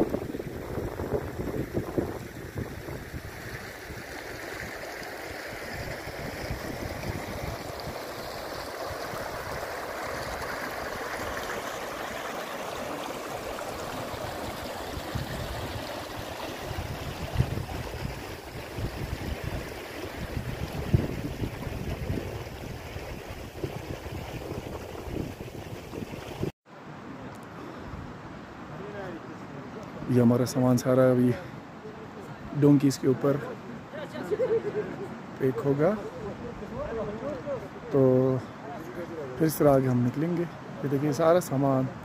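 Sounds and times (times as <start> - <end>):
wind buffeting microphone: 0.0 - 4.0, 5.7 - 10.4, 14.2 - 26.5
river rushing over stones: 0.0 - 34.3.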